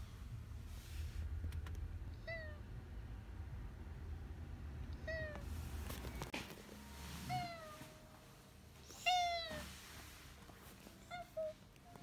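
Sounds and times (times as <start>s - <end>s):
cat meowing: 8.8s - 9.7s.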